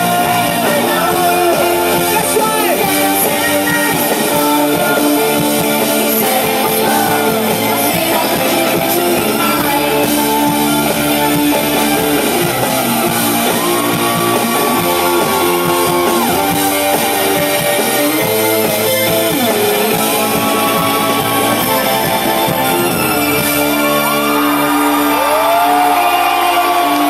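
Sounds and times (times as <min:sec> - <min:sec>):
electric guitars: 0:00.0 - 0:27.0
rock band playing live: 0:00.0 - 0:27.0.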